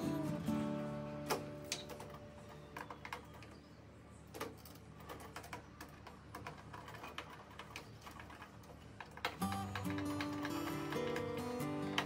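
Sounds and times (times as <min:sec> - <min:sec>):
screwdriver clicking on metal lock: 0:09.0 - 0:12.0.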